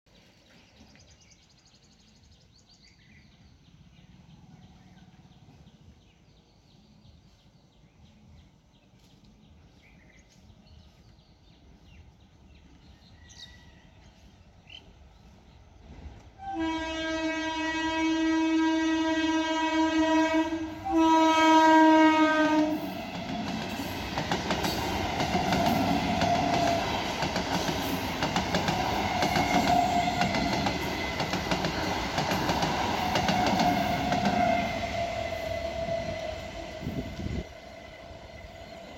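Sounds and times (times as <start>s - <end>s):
train horn blasts: 16.4s - 23.0s
train wheels clattering on rails: 22.8s - 35.9s.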